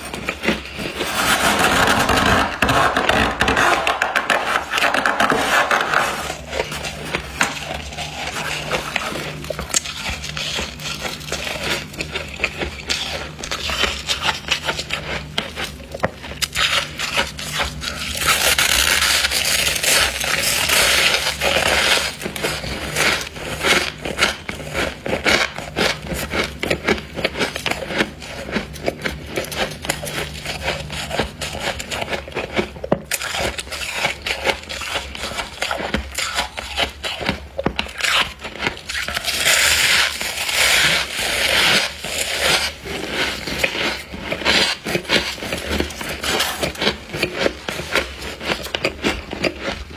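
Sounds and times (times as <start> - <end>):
frost crunching and scraping: 0.0 - 49.9.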